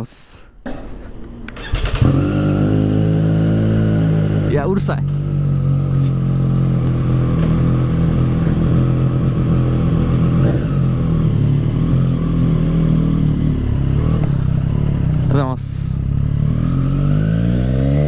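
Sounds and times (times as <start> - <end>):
motorcycle engine idling: 4.2 - 16.5.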